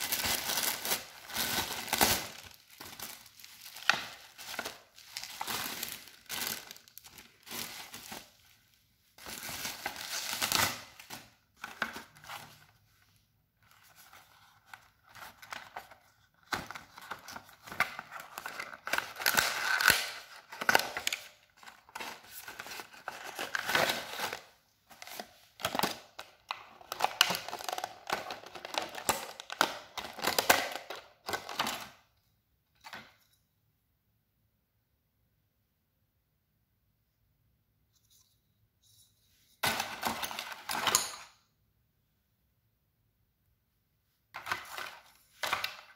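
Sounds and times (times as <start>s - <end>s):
bubble wrap crinkling and tearing: 0.0s - 8.6s, 9.2s - 12.6s, 13.7s - 31.8s.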